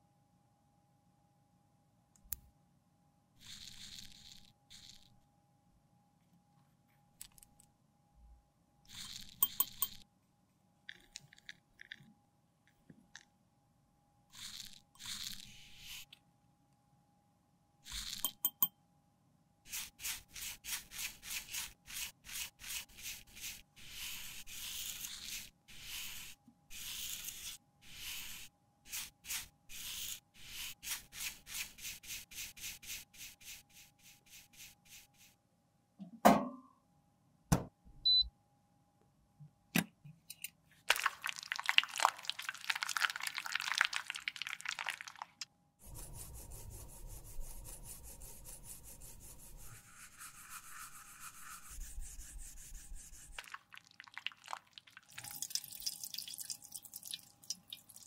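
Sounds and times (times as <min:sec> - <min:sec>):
rubbing or scraping strokes: 0:19.7 - 0:35.4, 0:45.8 - 0:53.5
rough scratching: 0:45.8 - 0:53.4.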